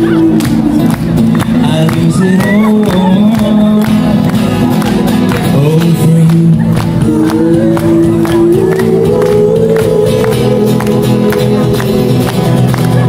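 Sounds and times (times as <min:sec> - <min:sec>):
man singing: 0:00.0 - 0:12.3
acoustic guitar strumming: 0:00.0 - 0:13.0.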